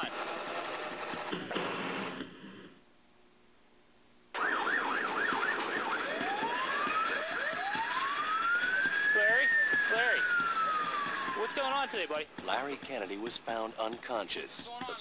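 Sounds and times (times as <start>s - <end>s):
ambulance siren: 4.4s - 12.1s
traffic noise: 4.4s - 15.0s.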